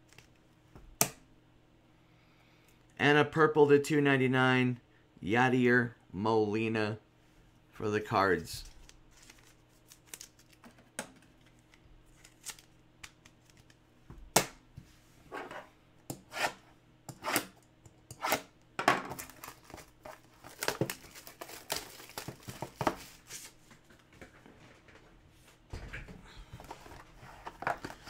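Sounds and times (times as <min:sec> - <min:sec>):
plastic wrap ripping and crinkling: 0:08.6 - 0:10.6, 0:19.1 - 0:23.3.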